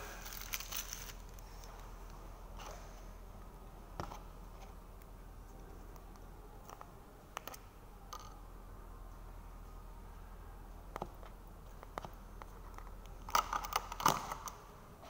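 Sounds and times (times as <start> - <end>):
low room hum: 0.0 - 15.0
plastic clicks and crackles: 10.9 - 14.6.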